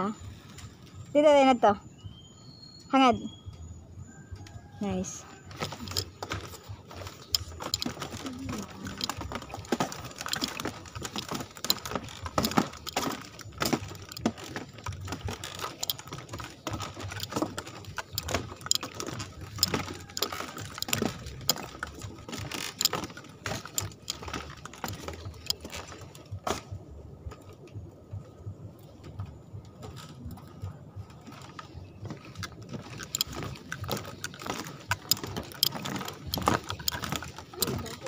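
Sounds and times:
flip-flop footsteps on boardwalk: 3.5s - 38.0s.

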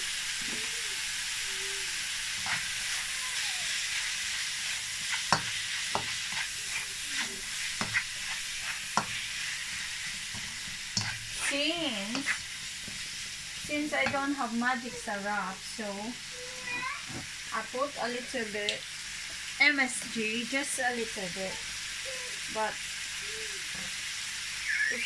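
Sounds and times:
meat and onion sizzling in pan: 0.0s - 25.0s
plastic spatula scraping pan: 5.1s - 9.2s, 12.1s - 12.5s.

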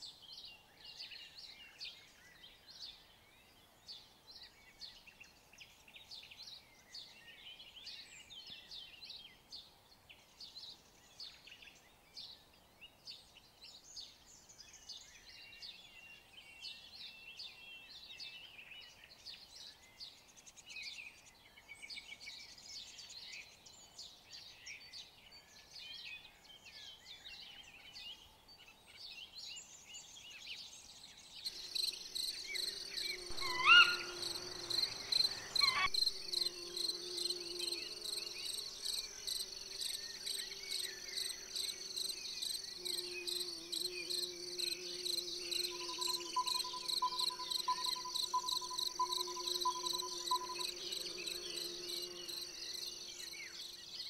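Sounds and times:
birds chirping and trilling: 31.0s - 54.0s
high insect buzz: 31.4s - 54.0s.

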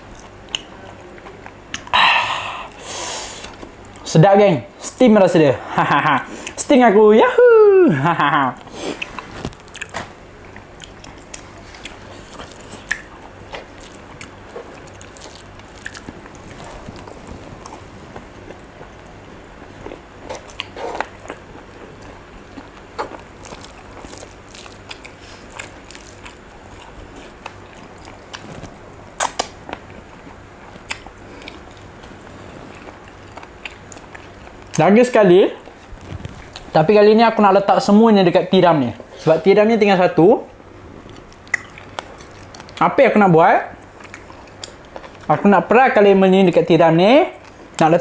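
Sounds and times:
chewing and lip-smacking: 0.0s - 1.9s, 8.6s - 34.8s, 41.0s - 42.8s, 43.8s - 45.3s
wet mouth clicks: 12.8s - 13.7s, 29.2s - 29.6s, 30.8s - 31.6s, 41.1s - 42.8s.

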